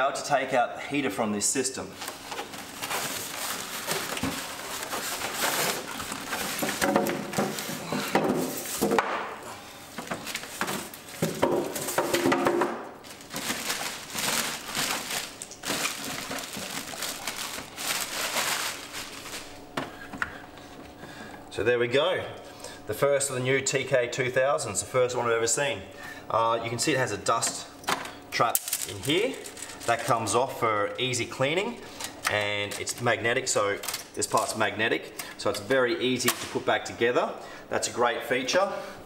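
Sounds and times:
packaging rustling and crinkling: 0:01.8 - 0:09.0, 0:09.9 - 0:19.6, 0:28.6 - 0:30.1.

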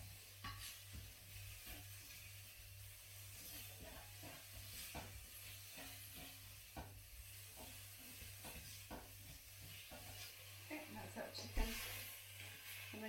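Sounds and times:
chicken sizzling in a wok: 0:00.0 - 0:13.0
utensil knocking against pan: 0:04.2 - 0:07.0, 0:08.4 - 0:09.2.

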